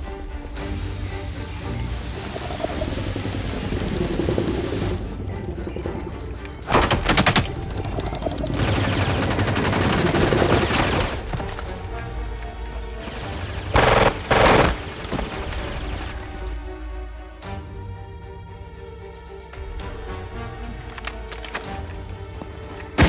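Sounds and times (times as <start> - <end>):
automatic gunfire bursts: 13.6 - 15.4.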